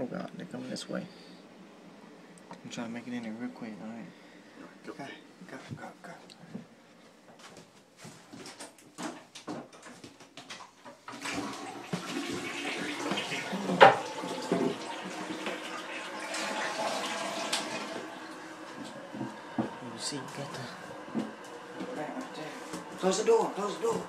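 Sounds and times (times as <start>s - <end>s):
toilet flushing: 11.0s - 24.0s.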